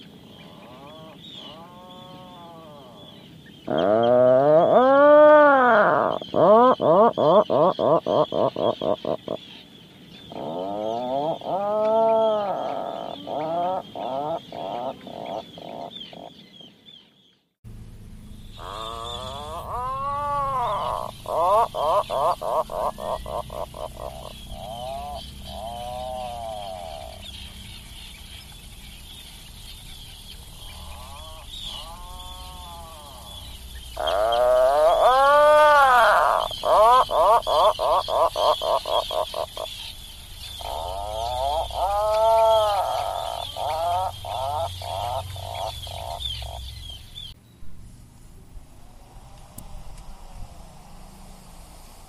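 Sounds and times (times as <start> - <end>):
background hiss: 0.0 - 52.0
puffin moaning and grunting calls: 0.5 - 3.1, 3.7 - 8.6, 10.3 - 15.9, 18.5 - 27.3, 30.6 - 39.6, 40.6 - 46.6
low rumble: 46.4 - 52.0.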